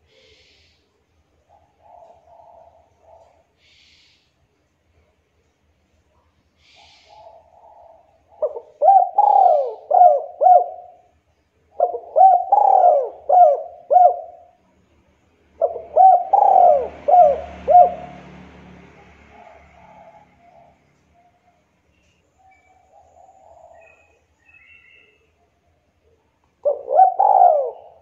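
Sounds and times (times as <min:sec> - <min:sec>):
dove cooing: 0:01.5 - 0:03.6, 0:06.7 - 0:14.6, 0:15.6 - 0:18.6, 0:19.2 - 0:21.6, 0:22.4 - 0:25.3, 0:26.0 - 0:28.0.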